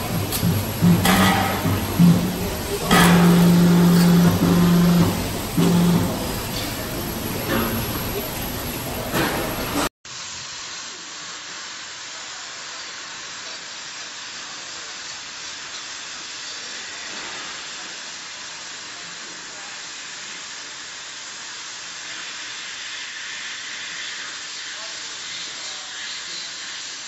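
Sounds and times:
workshop noise: 0.0 - 9.9
cutting torch hissing: 0.0 - 27.0.

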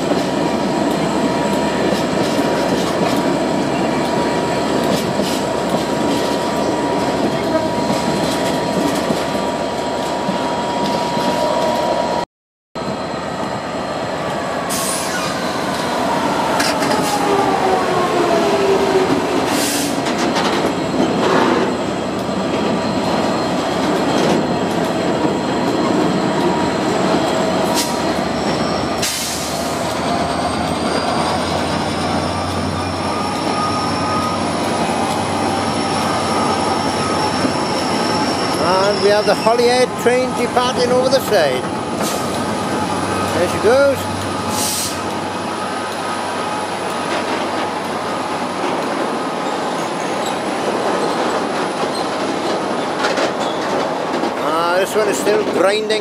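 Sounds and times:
diesel locomotive engine passing: 0.0 - 12.2, 12.8 - 56.0
train wheel squeal: 14.6 - 53.8.

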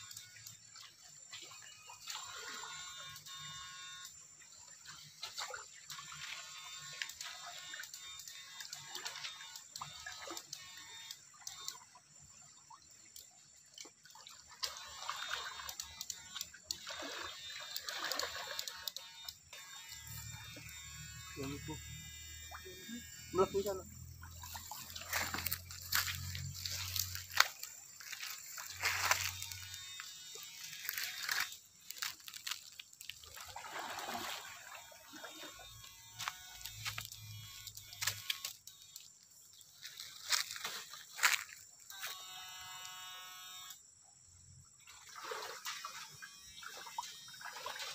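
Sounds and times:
stream water splashing: 0.0 - 43.0, 44.8 - 47.9
short clicks: 6.8 - 11.8, 14.6 - 16.9, 35.5 - 39.1.

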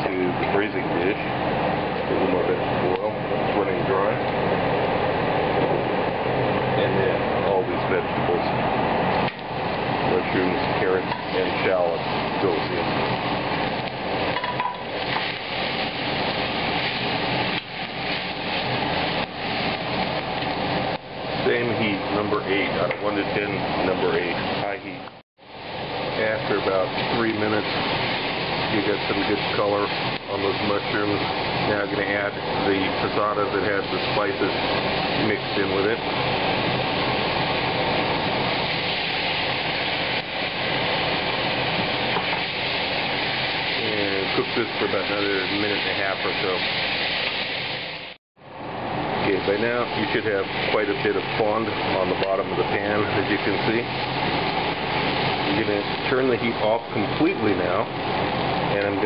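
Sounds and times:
vegetables sizzling in hot oil: 8.8 - 48.2, 49.0 - 59.0
utensil stirring in metal pot: 9.0 - 24.6.

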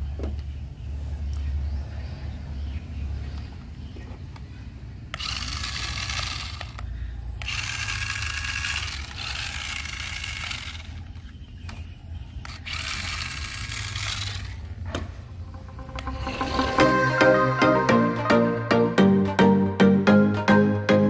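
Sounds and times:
toy car electric motor whirring: 5.1 - 14.8.

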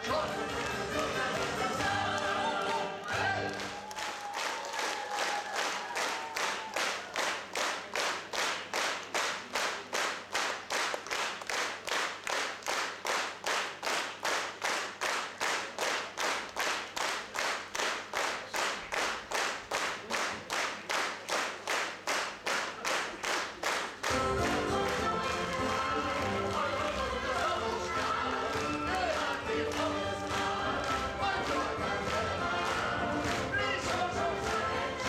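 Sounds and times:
audience clapping in time: 0.4 - 35.0
orchestra playing: 24.1 - 28.3.

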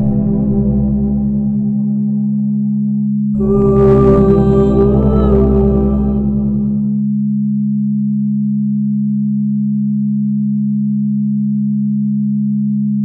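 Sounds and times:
singing bowl music: 0.0 - 7.7
low pulsing sine tones: 0.0 - 13.0.

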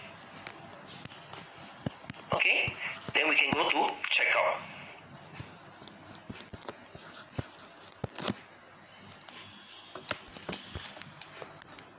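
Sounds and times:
low room noise: 0.0 - 11.9.

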